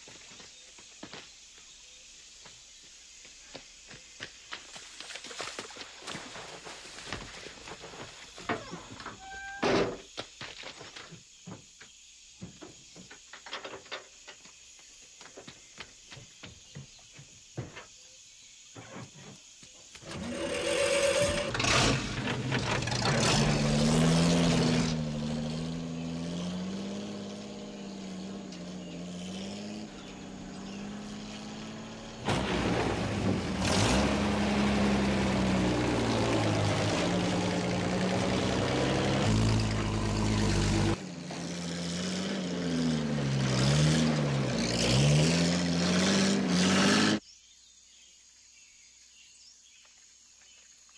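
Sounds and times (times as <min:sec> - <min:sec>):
knocks and clatters: 0:07.2 - 0:14.6, 0:20.0 - 0:24.4
truck engine starting and running: 0:20.0 - 0:47.2.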